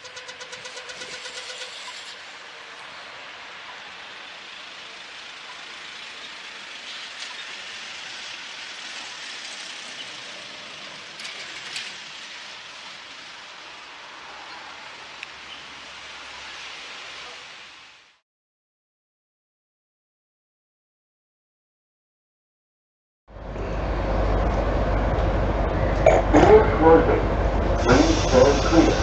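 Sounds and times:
passing cars hiss: 0.2 - 18.2, 25.8 - 29.0.

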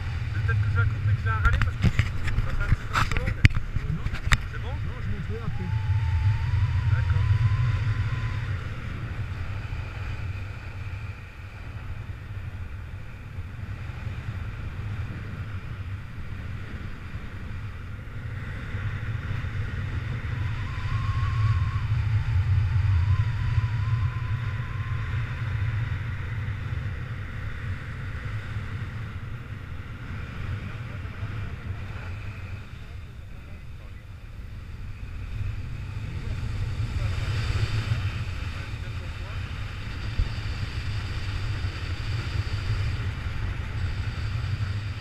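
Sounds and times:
wind buffeting microphone: 0.0 - 45.0
faint wavering high tone: 5.2 - 9.7, 20.2 - 26.3.

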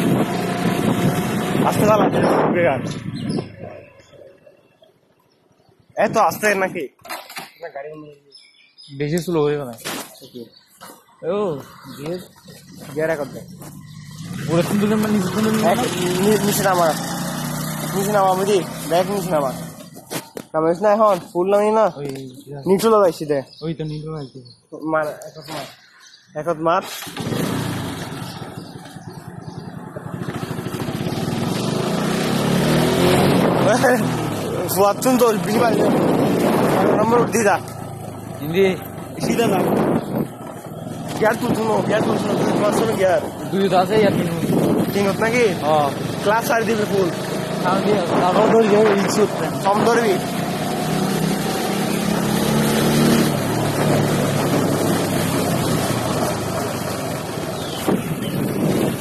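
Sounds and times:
motorcycle engine running: 0.0 - 4.2, 11.7 - 20.2, 27.0 - 59.0
wind and road noise: 0.0 - 59.0.

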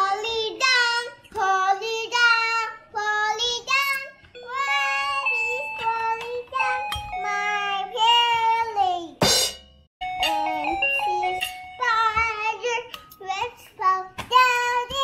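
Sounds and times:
girl singing: 0.0 - 9.2, 10.2 - 15.0
toy keyboard notes: 4.2 - 8.8, 10.0 - 13.4.

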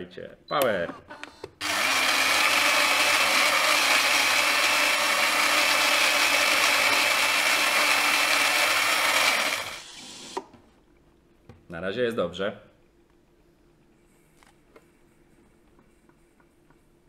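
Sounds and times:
coffee grinder grinding beans: 1.6 - 10.4.

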